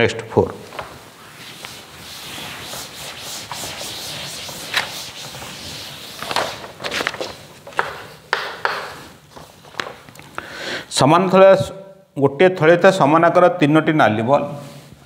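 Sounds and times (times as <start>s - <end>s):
cloth wiping chalkboard: 0.7s - 10.0s, 14.5s - 15.0s
chalk strokes on board: 1.2s - 6.6s.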